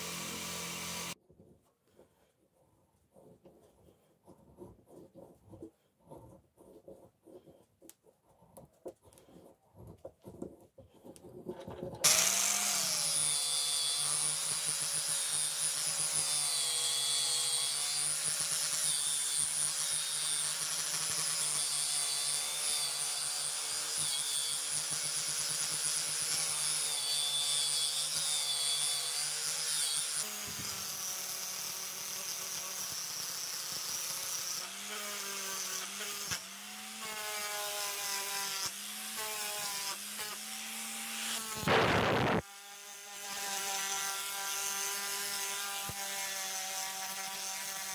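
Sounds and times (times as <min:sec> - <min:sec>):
angle grinder wire brush on metal: 0:00.0 - 0:01.2.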